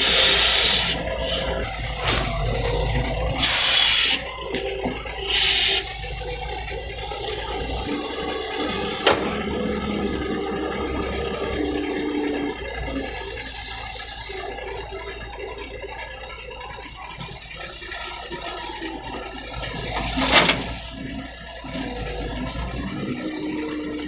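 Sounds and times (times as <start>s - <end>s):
hydraulic rushing hisses: 0.0s - 2.2s, 3.4s - 4.3s, 5.2s - 6.1s
excavator diesel engine running: 0.0s - 24.0s.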